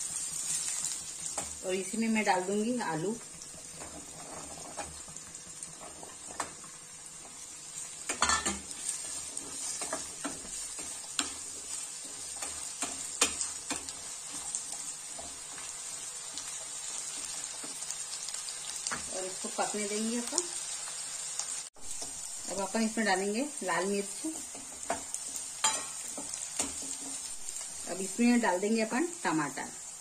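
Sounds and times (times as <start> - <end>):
vegetables sizzling in oil: 0.0 - 30.0
wooden spatula scraping pan: 3.8 - 5.0, 7.8 - 17.8.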